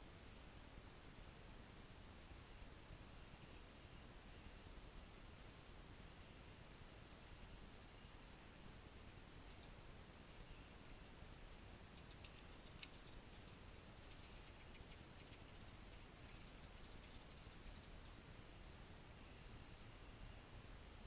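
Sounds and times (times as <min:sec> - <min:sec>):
high chirps of small wildlife: 0:09.4 - 0:09.8, 0:11.8 - 0:18.2.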